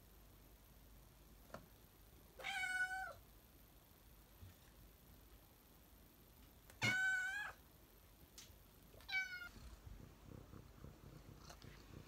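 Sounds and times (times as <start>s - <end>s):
cat meowing: 2.4s - 3.2s, 6.8s - 7.6s, 9.0s - 9.6s.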